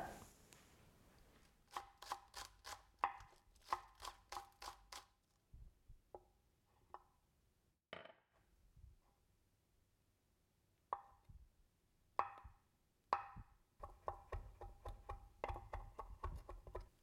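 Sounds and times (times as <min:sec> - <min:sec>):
cleaver chopping on wooden board: 0:13.2 - 0:16.9.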